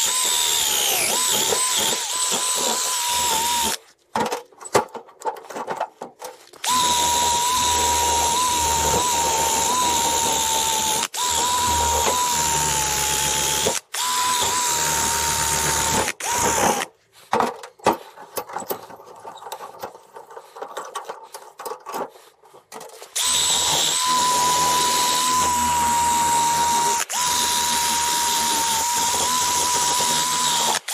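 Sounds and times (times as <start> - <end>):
cordless drill whining: 0.0 - 3.8, 6.6 - 16.9, 23.1 - 30.9.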